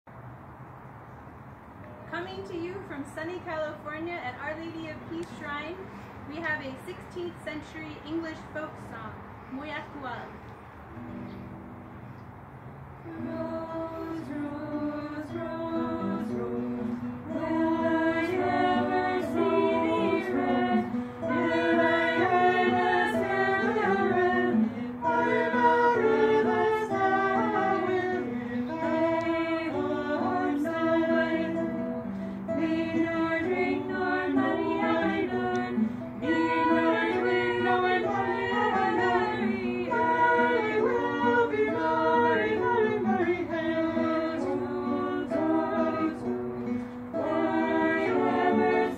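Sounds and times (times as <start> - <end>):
acoustic guitar: 0.8 - 48.9
women's choir singing: 13.0 - 48.9.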